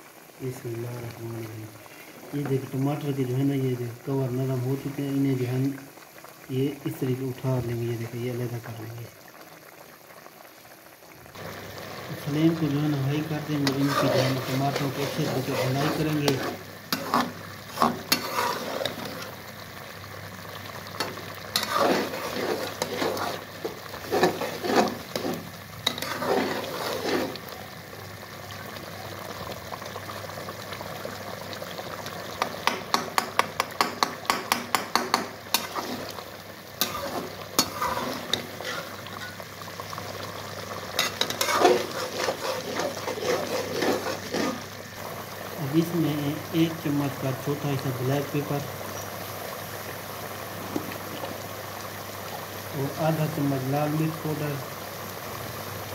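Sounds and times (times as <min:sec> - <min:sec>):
food sizzling in a pan: 0:00.0 - 0:55.9
metal spatula scraping a pan: 0:13.2 - 0:19.4, 0:21.0 - 0:27.5, 0:35.1 - 0:36.2, 0:36.8 - 0:39.4, 0:41.0 - 0:44.8.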